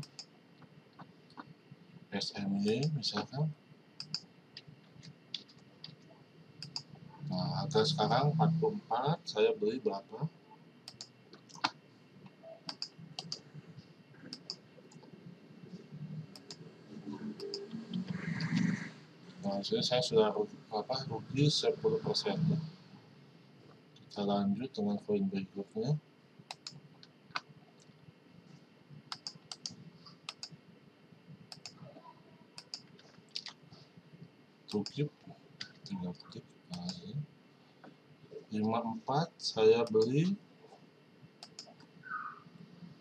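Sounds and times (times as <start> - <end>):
mouse and keyboard clicks: 4.0 - 4.2, 10.9 - 11.7, 12.7 - 13.4, 41.4 - 41.9.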